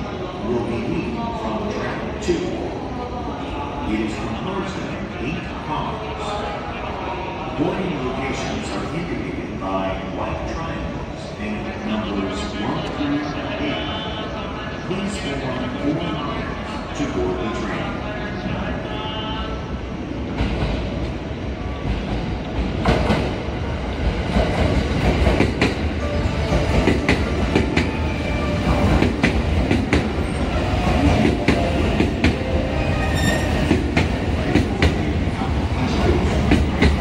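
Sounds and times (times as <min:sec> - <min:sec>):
train rumble: 0:07.4 - 0:37.0.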